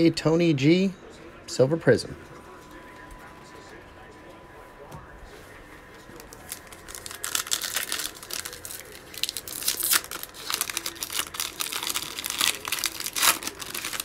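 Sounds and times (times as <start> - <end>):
foil wrapper crinkling and tearing: 6.1 - 14.0.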